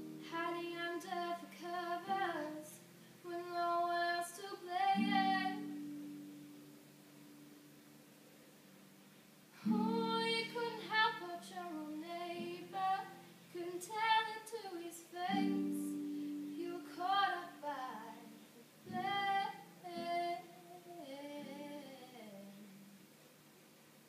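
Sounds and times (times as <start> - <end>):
girl singing: 0.0 - 6.0, 9.6 - 22.8.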